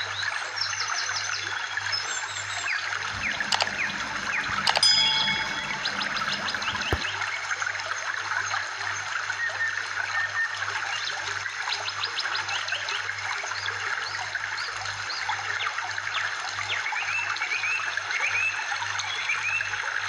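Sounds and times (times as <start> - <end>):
steady low hum: 3.1 - 7.1.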